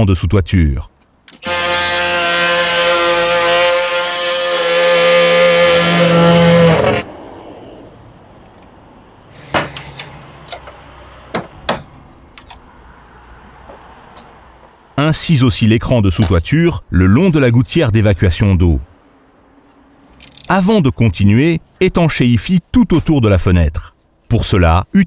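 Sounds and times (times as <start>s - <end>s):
oscillating multi-tool sawing wood: 1.4s - 7.1s.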